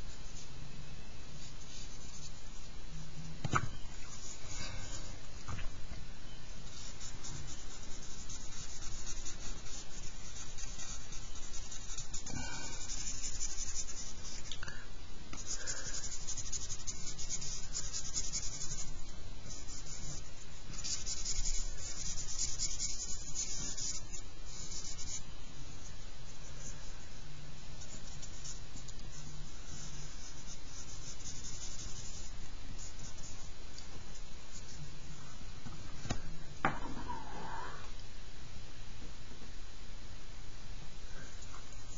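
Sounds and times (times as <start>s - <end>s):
charcoal scratching on paper: 6.6s - 14.5s, 15.4s - 25.2s, 27.8s - 33.5s.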